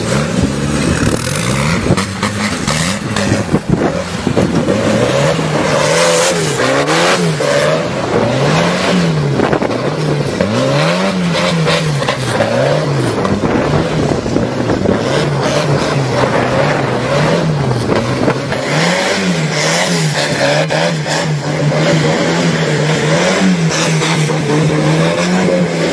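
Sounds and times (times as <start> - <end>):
tractor engine revving: 0.0 - 25.9.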